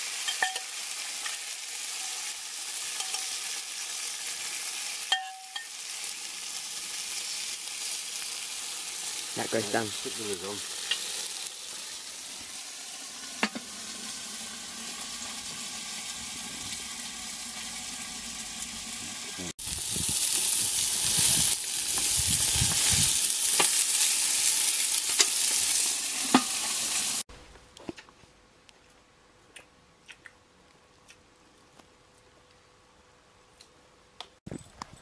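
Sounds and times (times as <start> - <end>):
meat sizzling on grill: 0.0 - 27.3.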